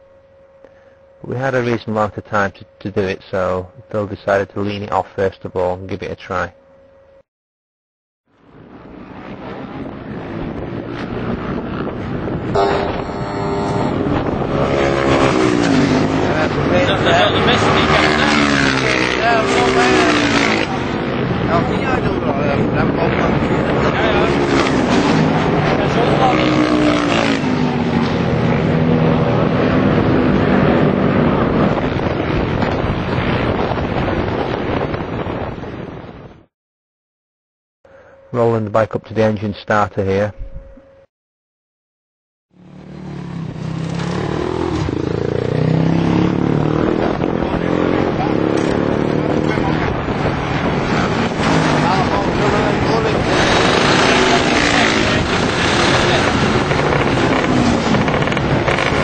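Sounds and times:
wind on microphone: 8.5s - 36.5s, 43.3s - 59.0s
racing motorcycle engines: 8.8s - 34.5s, 42.6s - 59.0s.

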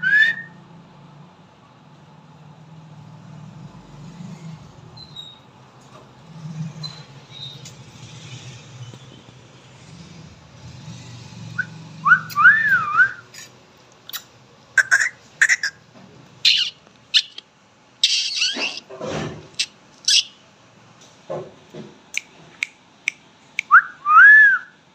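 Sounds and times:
parakeet calling: 14.1s - 15.8s, 16.4s - 17.4s, 18.0s - 18.9s, 19.6s - 20.4s.

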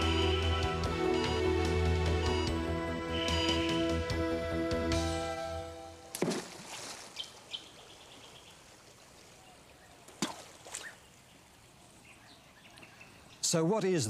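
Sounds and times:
background music: 0.0s - 6.1s.

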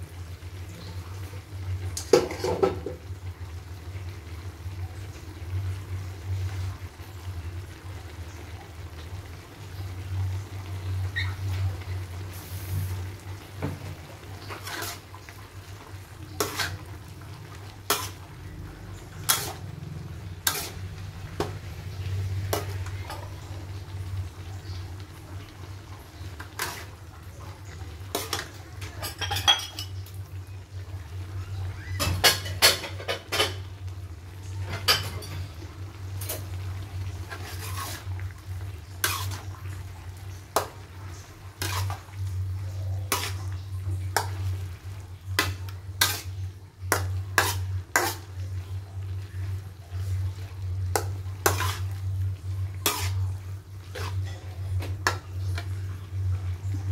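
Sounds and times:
metal spatula scraping wok: 14.4s - 23.4s, 26.4s - 27.0s, 37.2s - 38.2s, 38.8s - 39.5s, 41.5s - 42.2s, 43.0s - 43.6s, 45.4s - 48.5s, 50.0s - 55.7s.

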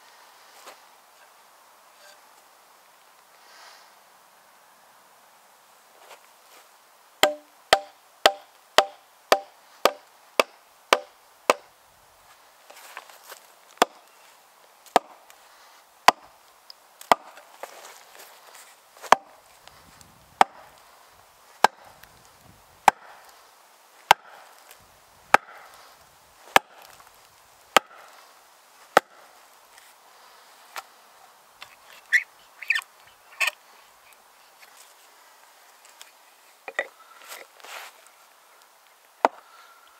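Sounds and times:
maul striking axe head: 7.2s - 11.7s, 16.1s - 16.3s, 17.0s - 17.4s, 20.4s - 20.7s, 21.6s - 21.9s, 22.8s - 23.1s, 24.1s - 24.4s, 25.3s - 25.8s, 26.5s - 26.9s, 27.7s - 28.1s.

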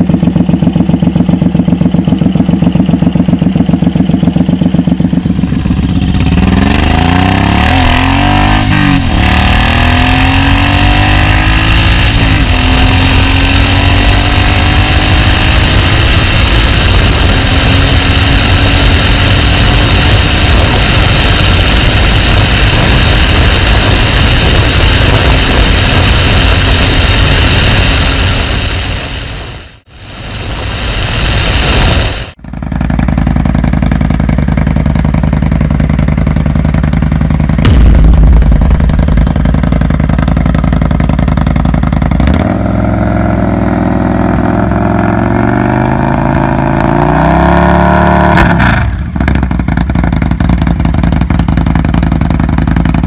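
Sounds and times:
motorcycle engine idling and revving: 0.0s - 53.0s
wind rush: 6.0s - 32.4s, 37.6s - 41.1s.

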